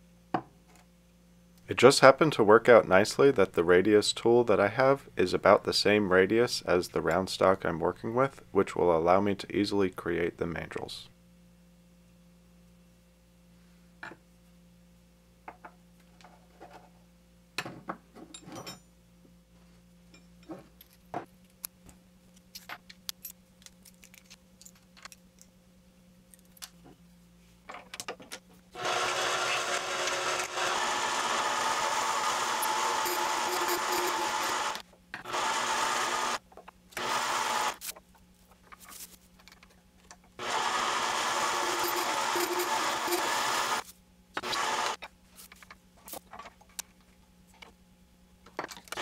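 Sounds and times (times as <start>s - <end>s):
lathe cutting plastic: 28.8s - 36.4s, 37.0s - 37.8s, 40.4s - 43.8s, 44.4s - 45.0s
lathe humming: 28.8s - 36.4s, 37.0s - 37.8s, 40.4s - 43.8s, 44.4s - 45.0s.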